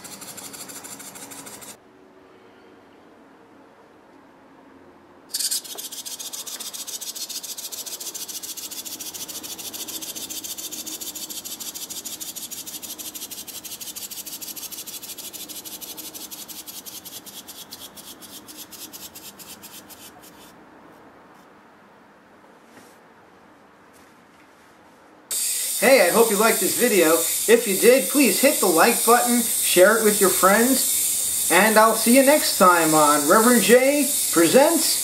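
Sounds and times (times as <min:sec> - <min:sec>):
clockwork rattle: 0:00.0 - 0:01.8, 0:05.3 - 0:17.8, 0:25.3 - 0:35.0.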